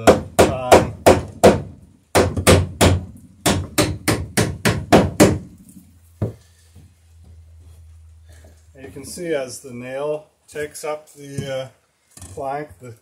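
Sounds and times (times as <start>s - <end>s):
hammer driving nails into wood: 0.0s - 5.5s.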